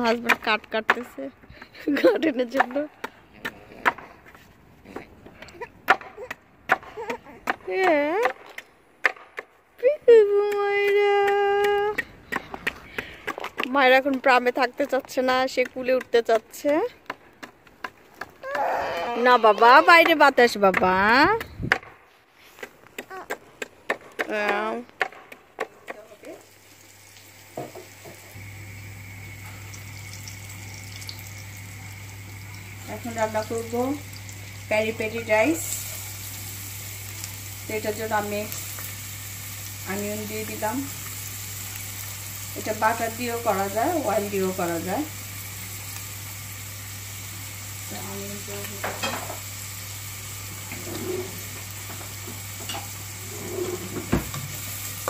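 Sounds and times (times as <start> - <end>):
onions sizzling in oil: 25.9 - 55.0.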